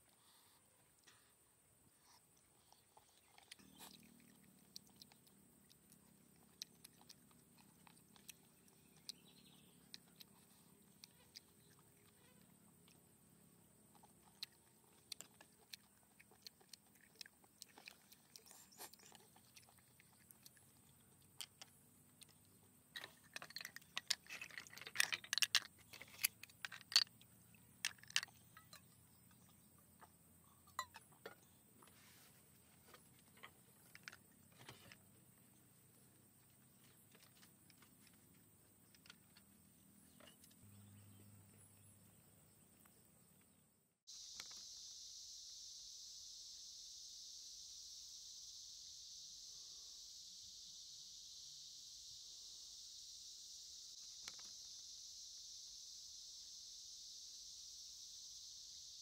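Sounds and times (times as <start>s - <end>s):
person chewing: 2.0s - 12.4s, 14.0s - 21.0s.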